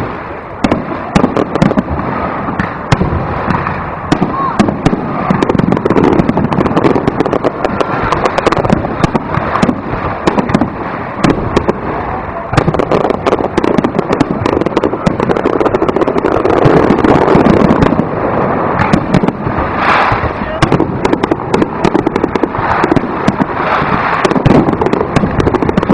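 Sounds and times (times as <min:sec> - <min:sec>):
fireworks bursting: 0:00.0 - 0:25.9
fireworks crackling: 0:00.0 - 0:25.9.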